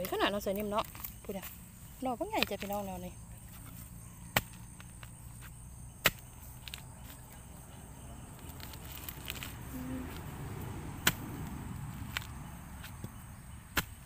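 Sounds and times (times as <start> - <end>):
digging bar striking soil: 3.5 - 7.4, 11.0 - 14.0.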